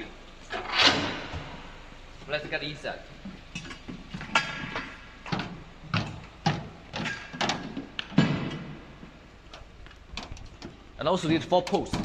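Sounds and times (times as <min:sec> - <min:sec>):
metal poles clunking on metal floor: 0:03.6 - 0:09.0.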